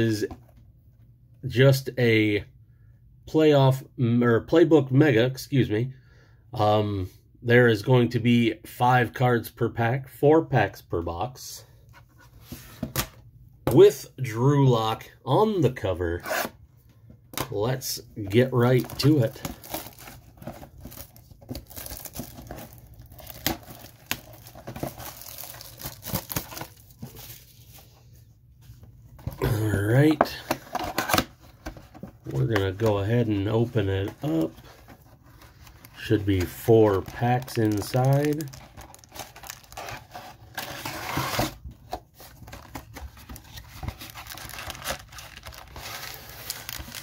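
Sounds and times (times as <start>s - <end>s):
plastic wrap crinkling: 18.3s - 27.8s, 32.3s - 41.4s, 42.3s - 47.0s
cardboard flap rustling: 30.1s - 47.0s.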